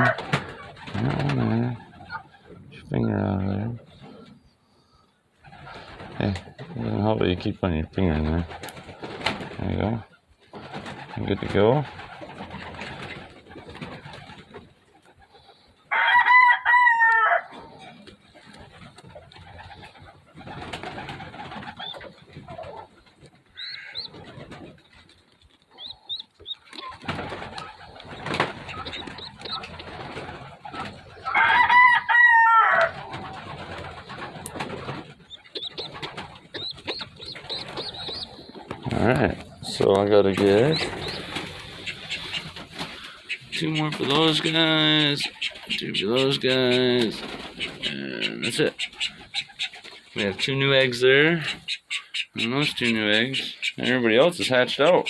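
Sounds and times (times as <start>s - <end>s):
pigeon squab squealing: 23.5s - 24.3s, 25.7s - 29.8s, 35.2s - 38.7s, 40.3s - 43.8s
nesting material rustling: 33.0s - 44.8s.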